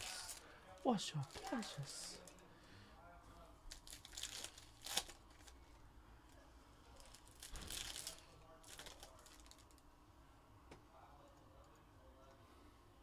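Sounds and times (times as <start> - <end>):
rustle of cards handled: 1.1 - 2.4, 6.9 - 9.8.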